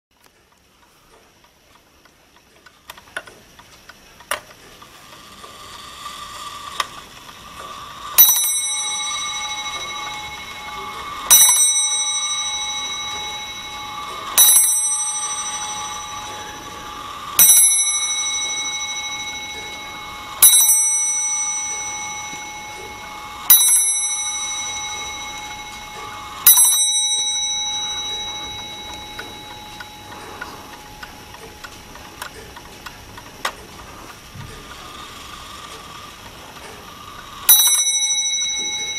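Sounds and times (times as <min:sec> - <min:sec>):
faint clock whirr: 0:00.1 - 0:38.9
clock bell striking: 0:07.6 - 0:32.6, 0:36.2 - 0:38.9.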